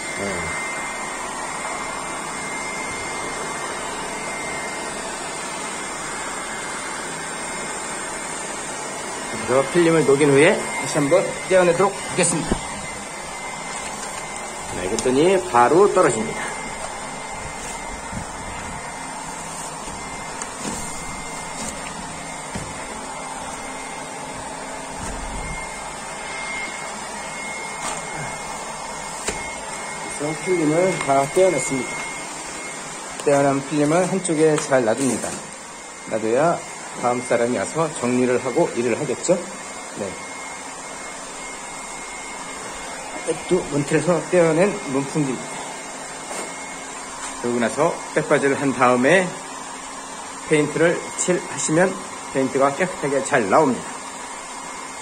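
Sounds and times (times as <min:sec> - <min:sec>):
hair dryer running: 0:00.0 - 0:55.0
heat gun blowing air: 0:00.0 - 0:55.0
thin high whine: 0:09.3 - 0:35.3.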